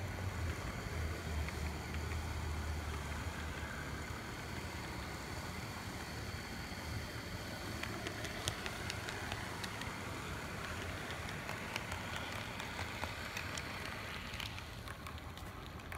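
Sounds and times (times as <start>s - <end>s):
model locomotive motor hum: 0.0s - 15.9s
light clicks: 7.6s - 15.9s.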